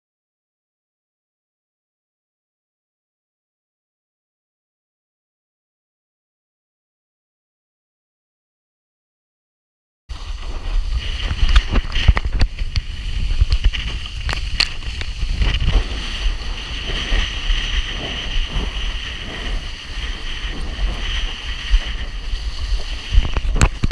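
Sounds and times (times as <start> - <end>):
water rushing and splashing: 10.1 - 23.9
wind buffeting microphone: 10.1 - 23.9.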